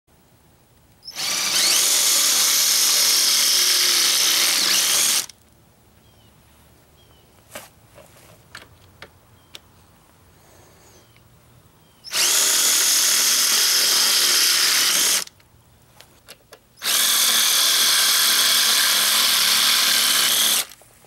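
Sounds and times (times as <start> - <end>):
cordless drill boring into metal: 1.1 - 5.3, 12.1 - 15.4, 16.8 - 20.8.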